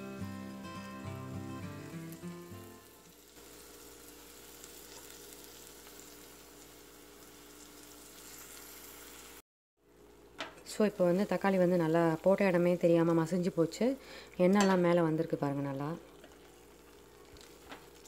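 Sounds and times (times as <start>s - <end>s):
guitar music: 0.0s - 3.0s
food sizzling in oil: 0.0s - 9.4s, 10.1s - 18.0s.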